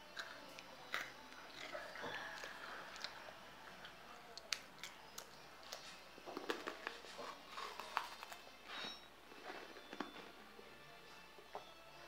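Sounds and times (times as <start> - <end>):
crunchy biscuit chewing clicks: 0.1 - 3.2, 3.8 - 8.4.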